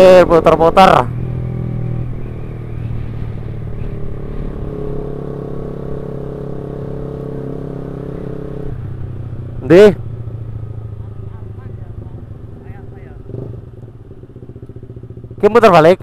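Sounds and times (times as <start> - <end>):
motorcycle engine running: 0.0 - 16.0
road noise: 0.0 - 16.0.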